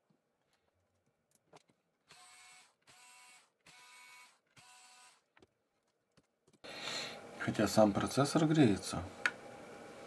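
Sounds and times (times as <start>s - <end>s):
electric screwdriver whining: 2.1s - 5.3s.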